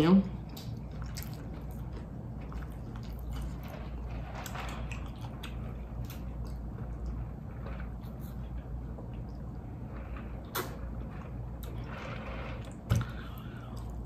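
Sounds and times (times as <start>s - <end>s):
steady low hum: 0.0s - 14.0s
soft chewing: 0.4s - 12.0s.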